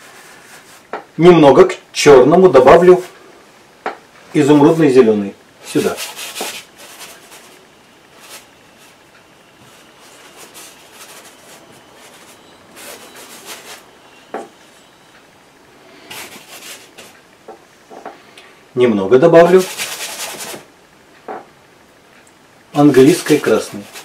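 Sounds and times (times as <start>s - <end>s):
bristle brush scrubbing canvas: 0.0s - 0.9s, 5.6s - 9.0s, 9.6s - 13.9s, 16.1s - 17.2s, 19.4s - 20.7s, 22.8s - 24.0s.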